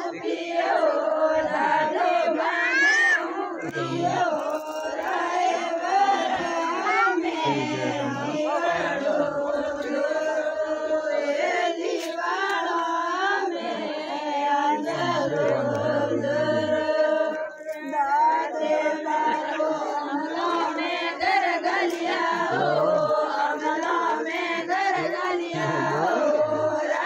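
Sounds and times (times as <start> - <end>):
women singing in unison: 0.0 - 27.0.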